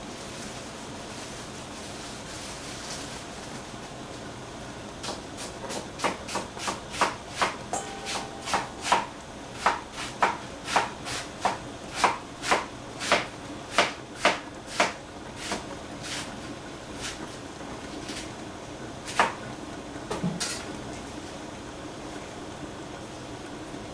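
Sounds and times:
knife chopping on cutting board: 0:05.0 - 0:16.3, 0:19.1 - 0:19.4.

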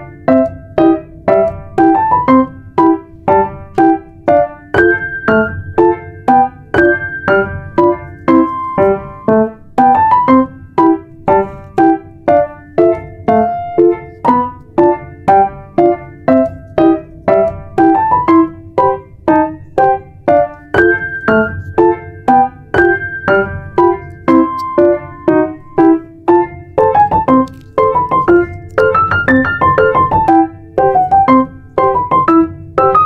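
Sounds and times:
keyboard melody: 0:00.0 - 0:33.0.

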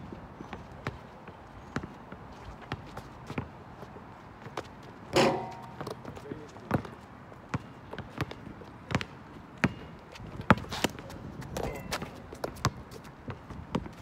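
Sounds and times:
footsteps on pavement: 0:00.0 - 0:14.0
basketball dribbling on pavement: 0:04.4 - 0:14.0.

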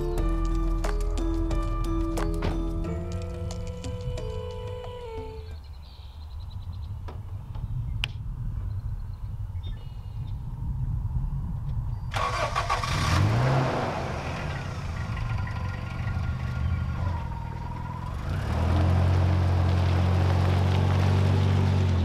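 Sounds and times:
van engine idling and running: 0:00.0 - 0:04.1, 0:12.2 - 0:22.0.

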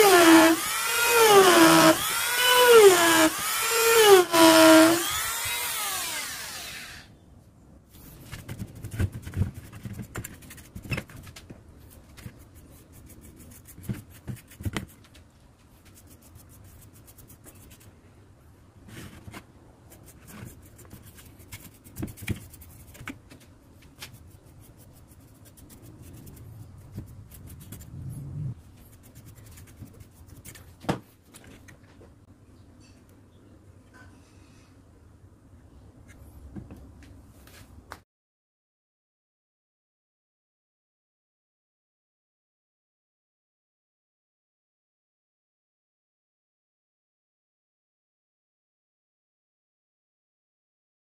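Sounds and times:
rotary tool whining: 0:00.0 - 0:07.1.

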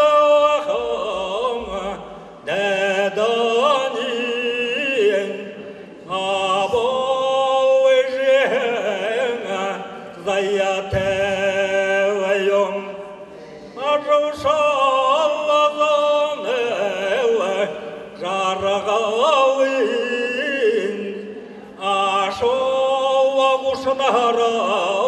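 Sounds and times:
man singing unaccompanied: 0:00.0 - 0:25.0.

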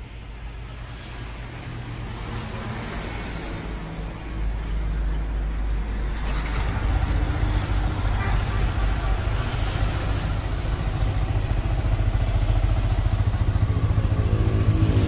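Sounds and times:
road traffic noise: 0:00.0 - 0:15.0
motorcycle engine starting: 0:06.0 - 0:15.0
motorcycle engine idling: 0:06.6 - 0:15.0.

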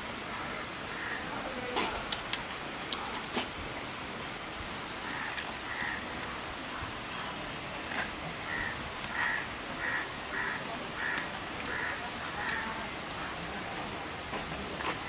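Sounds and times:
bird calling: 0:08.4 - 0:12.8.

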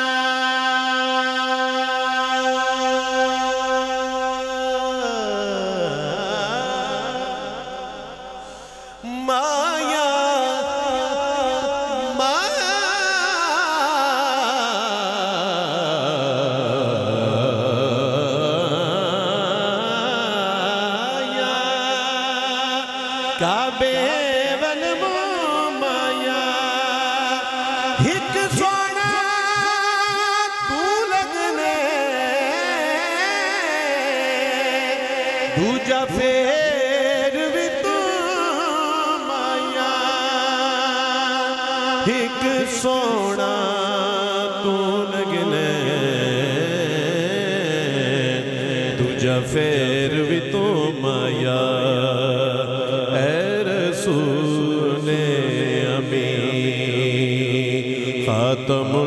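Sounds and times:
man singing through loudspeaker: 0:00.0 - 0:59.0.

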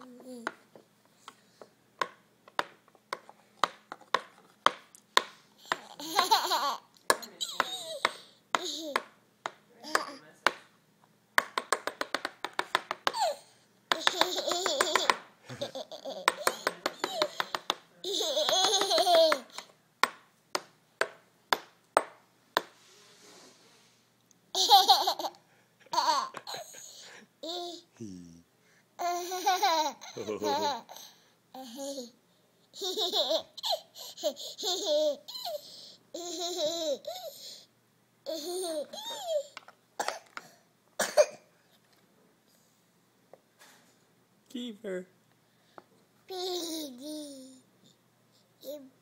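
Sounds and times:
baby giggling: 0:05.6 - 0:08.0, 0:08.6 - 0:09.0, 0:13.1 - 0:19.7, 0:24.6 - 0:27.9, 0:29.0 - 0:32.1, 0:32.8 - 0:37.4, 0:38.3 - 0:39.6.

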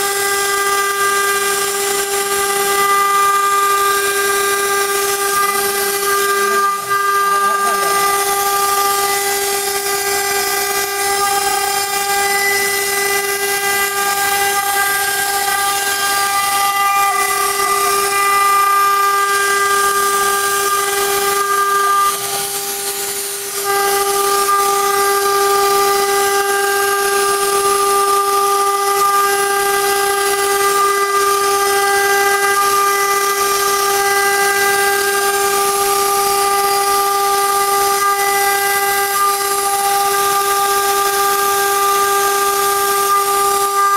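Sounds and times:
router spindle high whine: 0:00.0 - 0:43.9.

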